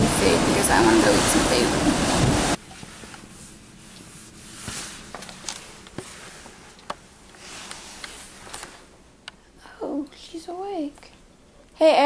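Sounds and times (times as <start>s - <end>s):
faint steady hum: 0.0s - 12.0s
camera handling rustling: 5.1s - 6.1s.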